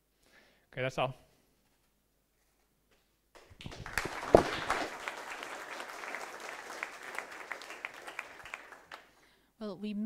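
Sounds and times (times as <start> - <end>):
audience applauding: 3.4 - 9.2.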